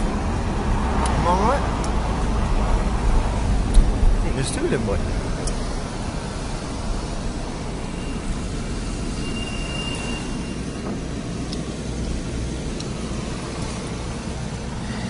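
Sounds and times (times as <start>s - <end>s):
car engine and road noise: 0.0s - 15.0s
faint high squeal: 7.8s - 11.0s.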